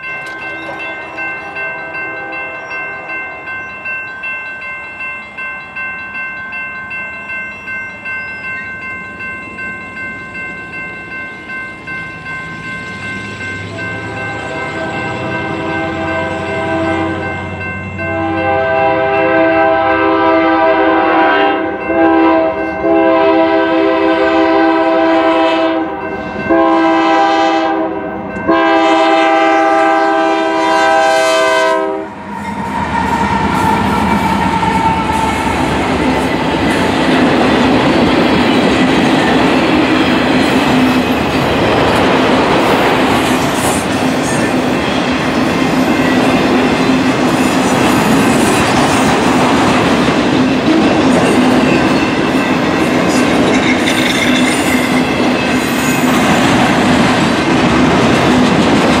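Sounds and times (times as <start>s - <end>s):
railroad crossing bell: 0.0s - 59.0s
train approaching: 0.0s - 59.0s
locomotive air horn: 14.0s - 17.4s, 18.0s - 35.5s.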